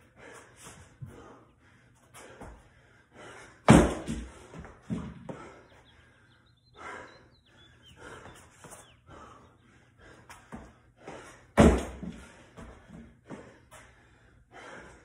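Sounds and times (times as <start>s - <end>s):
person breathing hard: 0.0s - 4.6s, 5.2s - 15.0s
thud of landing on wooden box: 3.7s - 5.3s, 11.6s - 12.3s.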